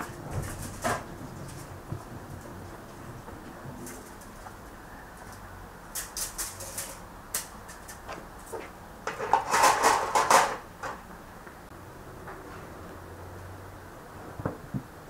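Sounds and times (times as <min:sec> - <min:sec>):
light ticks and rustles: 0:00.1 - 0:08.7
metal skewers clattering on metal bowl: 0:05.9 - 0:10.6.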